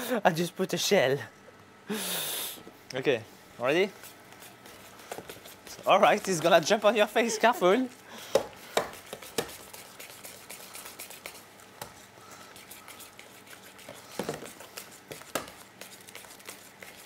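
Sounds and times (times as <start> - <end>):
whisk squelching in dough: 3.7 - 17.0.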